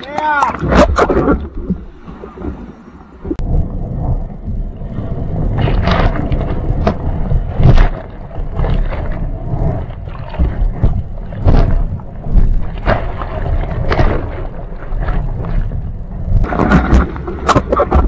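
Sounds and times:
water splashing on camera: 16.4s - 18.0s.

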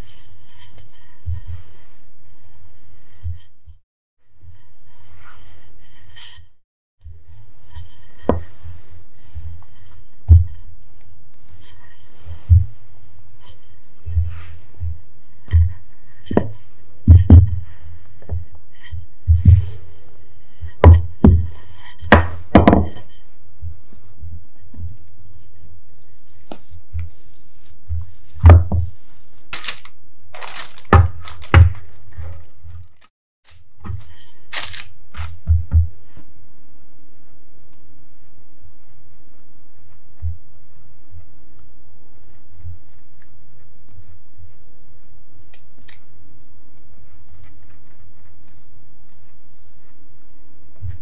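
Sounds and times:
steady low hum: 0.0s - 32.9s
rolling pin rubbing on dough: 7.1s - 29.5s
rolling pin thudding on mat: 22.1s - 23.0s
parchment paper rustling: 23.9s - 36.2s.

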